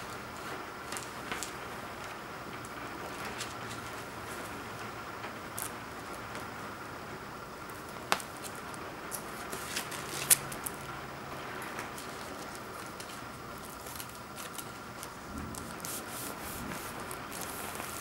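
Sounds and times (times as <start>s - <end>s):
plastic rustling and crinkling: 0.0s - 4.6s, 7.9s - 10.8s, 11.5s - 18.0s.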